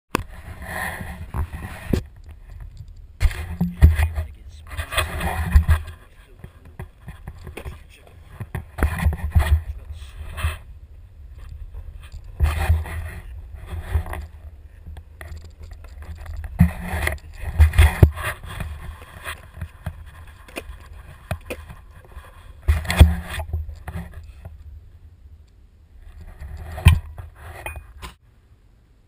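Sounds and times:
longboard wheels rolling on asphalt: 0.1s - 25.1s.

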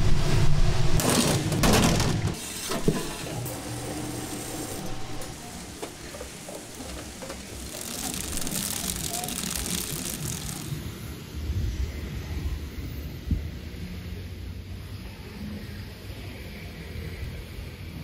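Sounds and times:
machines whirring and clattering: 0.4s - 11.2s.

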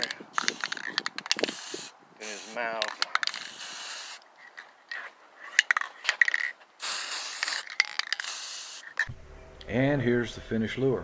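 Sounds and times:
spray can rattling: 0.0s - 9.1s
spray can hissing bursts: 0.3s - 4.2s, 6.8s - 9.1s.

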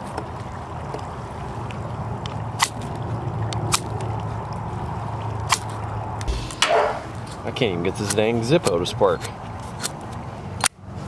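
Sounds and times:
wind rumbling: 4.2s - 7.5s
knife blade scraping: 6.3s - 7.2s.

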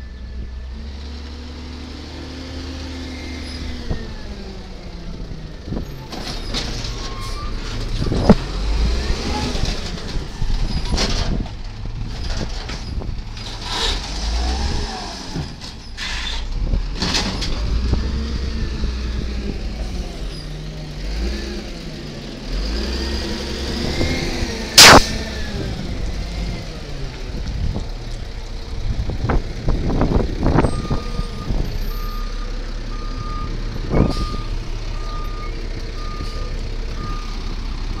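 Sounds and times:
loud sharp bang: 24.8s - 25.2s.

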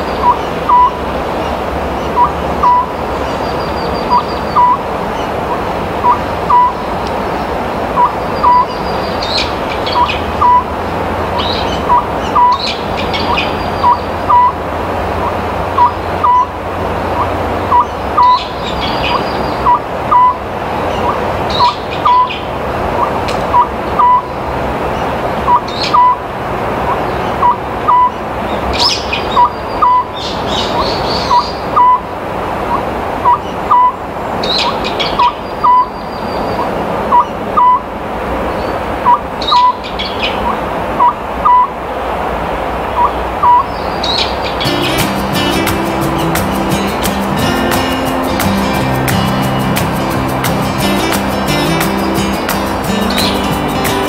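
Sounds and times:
small birds chirping: 0.0s - 26.2s, 26.8s - 32.1s, 32.7s - 37.8s, 38.5s - 41.7s, 42.9s - 54.0s
owl whistled calls: 0.2s - 1.0s, 2.2s - 2.9s, 4.1s - 4.8s, 6.0s - 6.8s, 8.0s - 10.6s, 11.9s - 14.5s, 15.8s - 16.5s, 17.2s - 18.5s, 19.1s - 20.4s, 21.0s - 22.4s, 23.0s - 24.2s, 25.5s - 26.2s, 27.4s - 28.2s, 28.9s - 32.0s, 33.2s - 34.0s, 34.6s - 35.9s, 37.1s - 37.8s, 40.4s - 41.7s, 43.0s - 43.7s.

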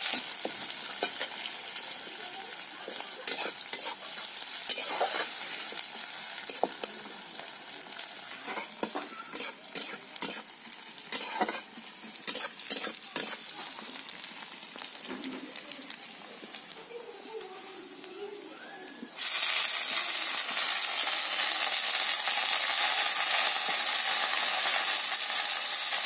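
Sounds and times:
onion sizzling in oil: 0.0s - 26.0s
metal spatula scraping pan: 3.2s - 5.4s, 8.4s - 10.5s, 11.1s - 13.5s.

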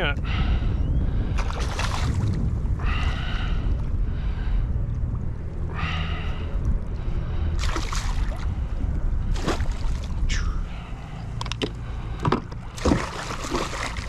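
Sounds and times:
wind rumble on microphone: 0.0s - 14.0s
sharp splashes: 7.6s - 8.5s, 9.3s - 10.1s, 12.7s - 14.0s
fish thrashing in water: 9.3s - 10.2s, 12.7s - 14.0s.

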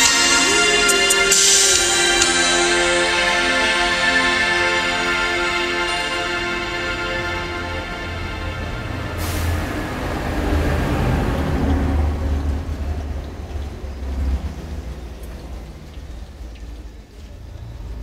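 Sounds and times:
cymbal crash: 0.0s - 10.0s.

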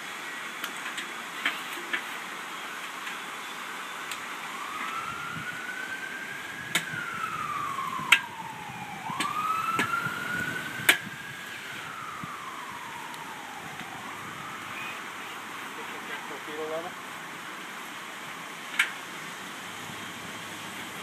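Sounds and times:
siren wailing: 2.6s - 17.0s.

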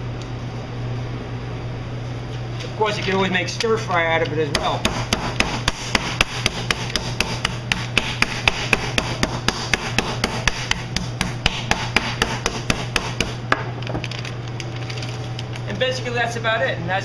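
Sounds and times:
meat being pounded: 4.5s - 13.7s.

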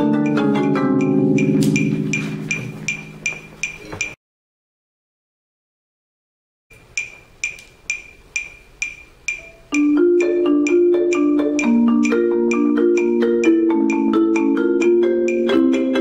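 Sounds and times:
marimba played with mallets: 0.0s - 4.2s, 8.8s - 16.0s
metronome clicking: 0.0s - 4.2s, 6.8s - 16.0s.

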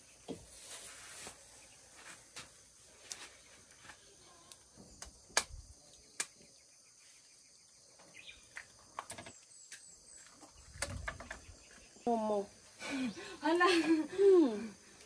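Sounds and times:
crickets and insects humming: 0.0s - 15.0s
bird chirps: 5.9s - 12.4s.

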